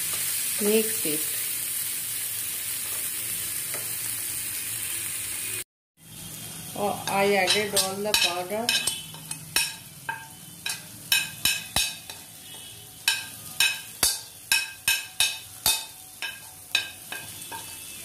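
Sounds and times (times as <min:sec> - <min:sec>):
faint frying sizzle: 0:00.0 - 0:18.0
steel spoon scraping a wok: 0:07.0 - 0:18.0.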